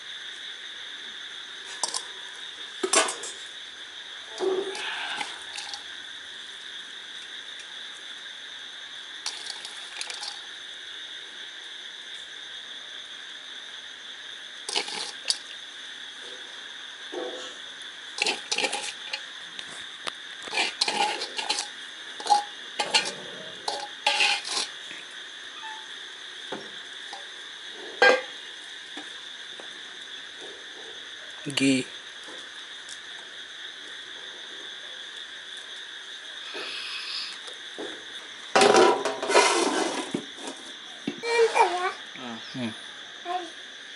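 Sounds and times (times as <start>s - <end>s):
crickets chirring: 0.0s - 43.9s
metal dishes and pots clinking: 2.8s - 3.4s, 20.5s - 24.7s, 28.0s - 28.4s, 38.6s - 39.7s.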